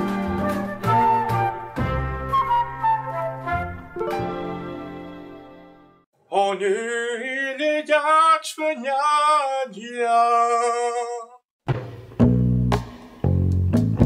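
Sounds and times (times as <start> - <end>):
flute music: 0.0 - 6.0
guitar music: 0.0 - 6.0
man singing unaccompanied: 6.2 - 11.4.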